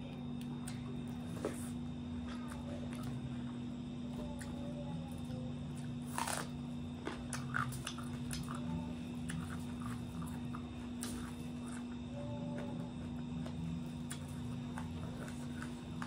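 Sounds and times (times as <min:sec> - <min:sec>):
low hum: 0:00.0 - 0:16.0
chewing and mouth smacks: 0:06.1 - 0:11.9.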